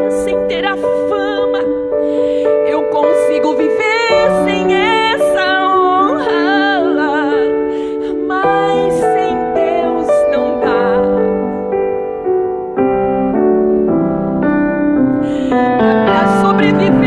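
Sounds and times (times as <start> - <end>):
woman singing worship song: 0.0 - 11.7, 15.2 - 17.0
sustained keyboard chords: 0.0 - 17.0.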